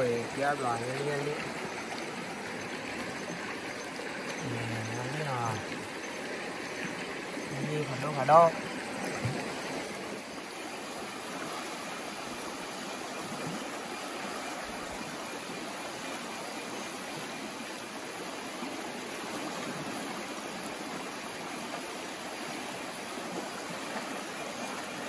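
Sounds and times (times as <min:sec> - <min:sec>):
stream water rushing: 0:00.0 - 0:25.0.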